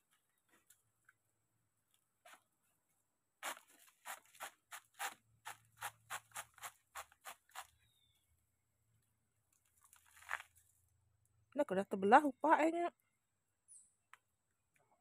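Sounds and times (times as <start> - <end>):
knife cutting fibrous trunk: 3.4 - 7.8.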